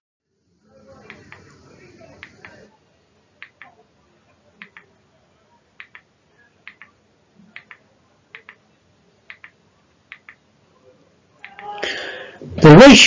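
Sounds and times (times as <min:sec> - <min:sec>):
faint double clicks: 0:09.3 - 0:10.4.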